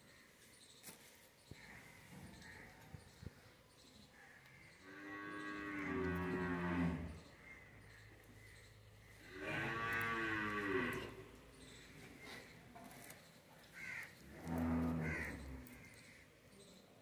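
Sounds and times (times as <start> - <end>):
cow mooing: 4.9 - 7.1, 9.3 - 11.2, 14.4 - 15.6.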